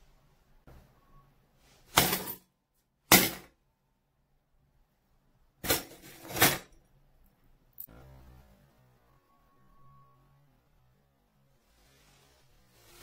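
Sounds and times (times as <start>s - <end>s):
clatter of shards and coins: 5.6s - 6.8s.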